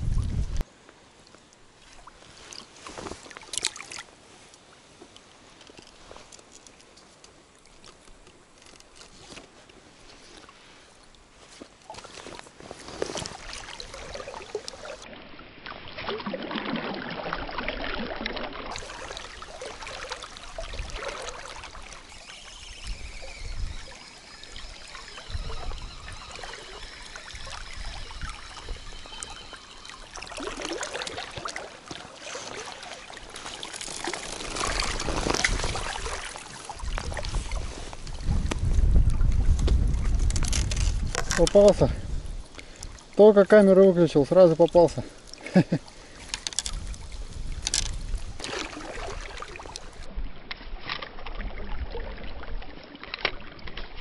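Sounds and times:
river rippling and trickling: 0.0s - 54.0s
small clicks: 46.2s - 46.8s, 47.6s - 48.0s.

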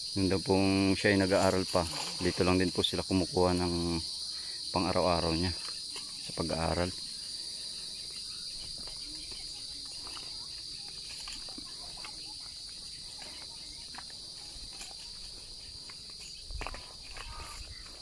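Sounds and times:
insects droning: 0.0s - 18.0s
footsteps on dirt path: 5.2s - 18.0s.

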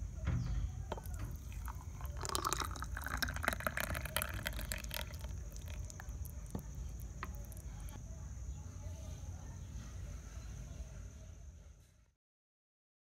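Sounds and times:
smoothie pouring into glass: 0.9s - 7.8s.

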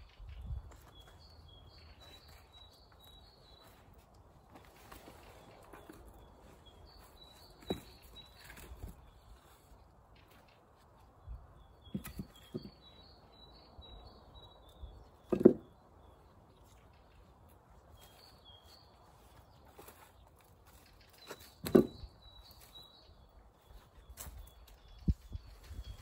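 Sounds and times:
songbird singing: 0.0s - 26.0s
dull thumps and knocks: 7.3s - 9.0s, 11.9s - 13.0s, 15.3s - 15.7s, 21.6s - 22.1s.

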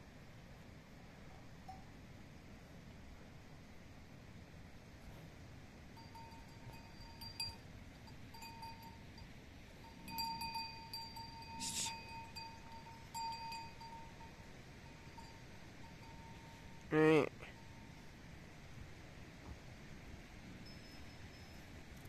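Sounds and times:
livestock bell ringing: 6.0s - 18.2s, 20.6s - 21.9s
brief hiss: 11.6s - 12.0s.

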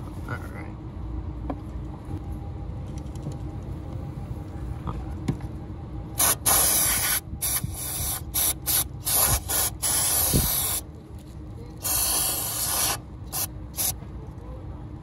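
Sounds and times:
aerosol can spraying: 6.2s - 10.8s, 11.8s - 13.9s.

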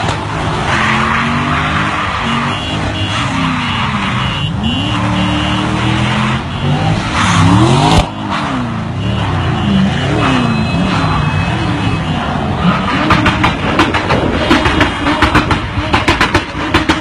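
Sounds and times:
car engines revving: 0.0s - 17.0s
tyres squealing on asphalt: 0.6s - 13.3s.

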